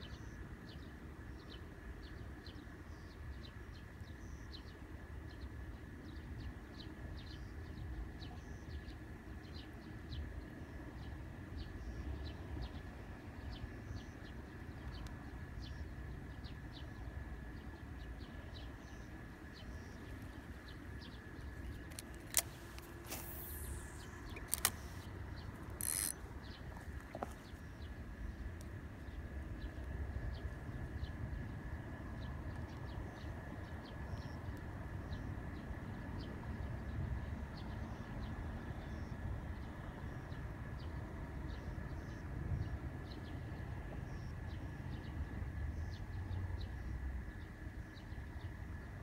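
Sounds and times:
sharp clicks: 21.7s - 26.2s.

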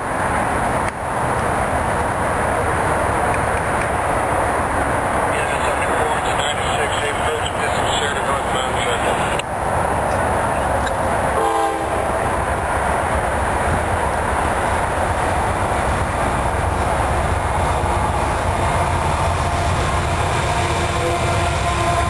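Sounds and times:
freight train rumble: 0.0s - 22.0s
train horn note: 11.4s - 12.2s, 19.5s - 22.0s.

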